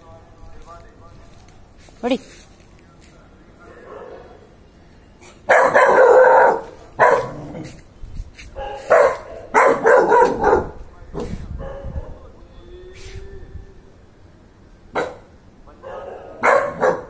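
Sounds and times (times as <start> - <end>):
dog barking loudly: 5.4 - 7.8, 8.6 - 10.8, 11.6 - 12.2, 14.9 - 17.0.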